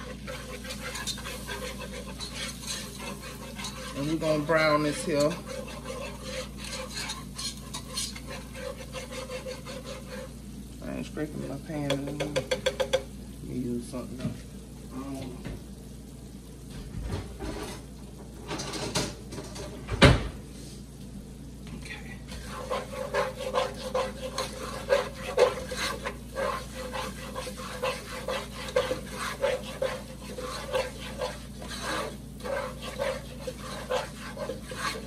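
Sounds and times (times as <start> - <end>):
spatula stirring and scraping pot: 0.0 - 13.1, 21.9 - 35.0.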